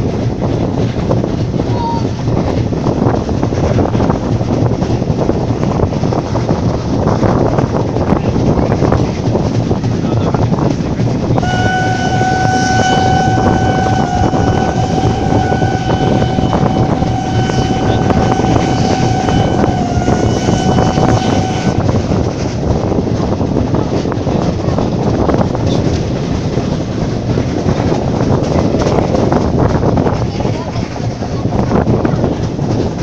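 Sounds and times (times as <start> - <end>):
moving train running: 0.0 - 33.0
wind on microphone: 0.0 - 33.0
steam whistle blast: 11.4 - 21.8.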